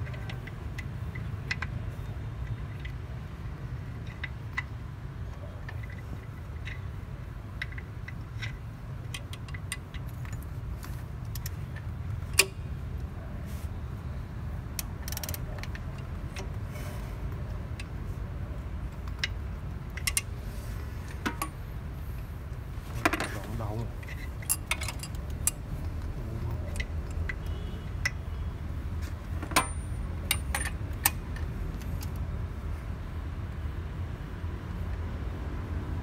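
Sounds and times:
metallic clicks and clinks: 0:23.0 - 0:28.2, 0:29.2 - 0:32.3.

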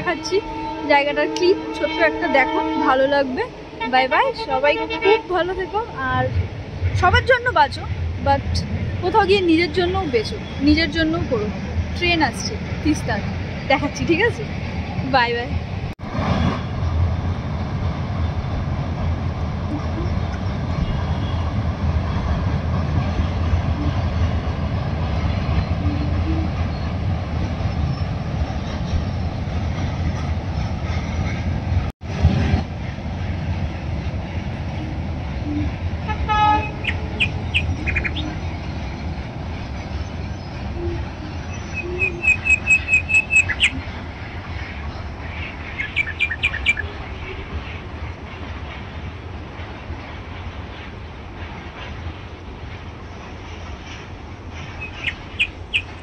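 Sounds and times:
train rumbling over bridge: 0:00.0 - 0:56.0
birds chirping: 0:34.7 - 0:48.8, 0:54.6 - 0:56.0.

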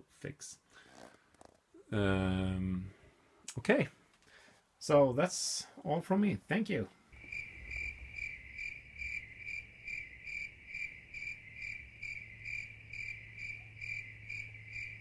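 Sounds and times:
cricket chirping: 0:07.2 - 0:15.0.

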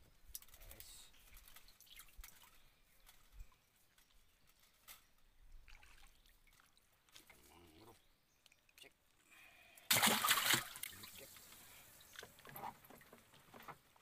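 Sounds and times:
water dripping and trickling: 0:00.3 - 0:04.7, 0:05.4 - 0:08.8.

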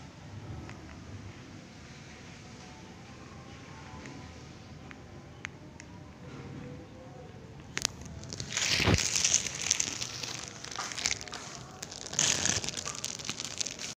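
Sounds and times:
plastic bag crinkling: 0:07.7 - 0:14.0.

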